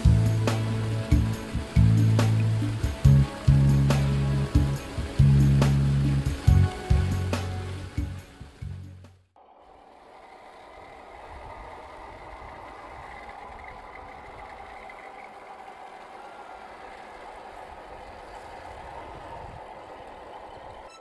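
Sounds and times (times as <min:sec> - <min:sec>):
rc car electric motor whirring: 0:09.4 - 0:21.0.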